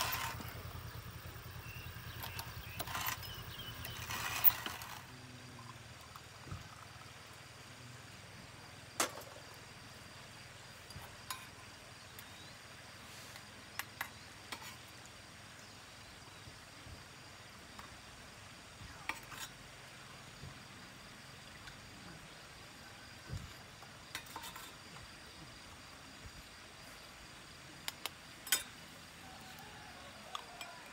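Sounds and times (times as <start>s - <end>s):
faint steady hiss: 0.0s - 30.9s.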